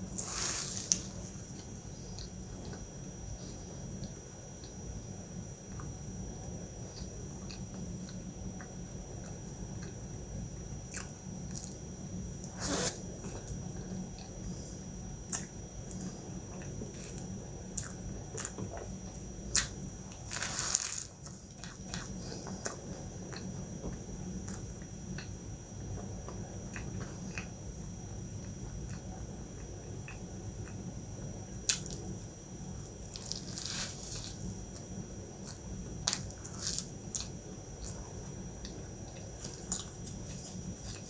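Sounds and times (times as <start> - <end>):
chewing flaky pastry: 15.2 - 31.0, 31.6 - 41.0.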